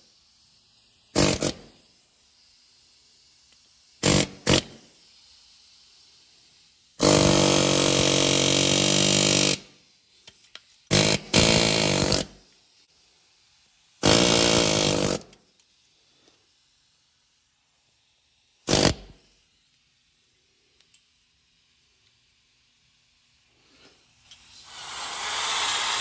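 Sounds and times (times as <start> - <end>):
pneumatic die grinder grinding: 1.2 - 1.7, 7.0 - 9.7, 10.9 - 12.4, 14.0 - 15.4.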